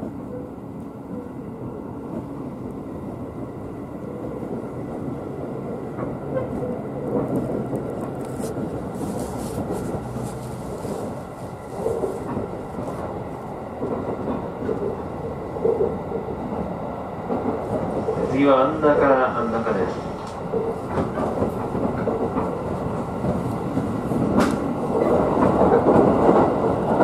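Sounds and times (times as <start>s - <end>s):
train wheels rumbling: 0.0s - 27.0s.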